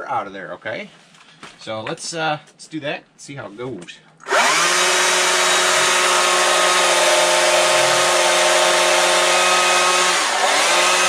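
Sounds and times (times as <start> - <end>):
chainsaw cutting a log: 4.3 - 11.0.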